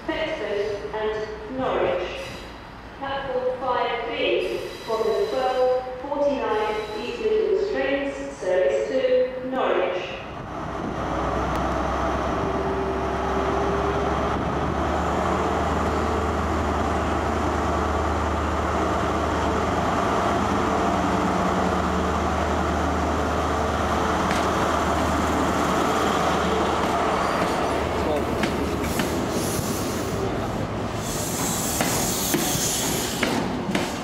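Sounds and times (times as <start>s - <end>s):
diesel train engine hum: 10.0s - 34.0s.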